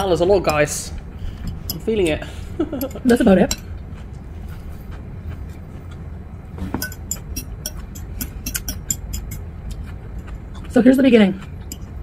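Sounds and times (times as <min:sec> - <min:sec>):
steady low hum: 0:00.0 - 0:12.0
chewing raw salad: 0:02.8 - 0:12.0
fork clicking in a bowl: 0:06.8 - 0:09.8, 0:11.6 - 0:12.0.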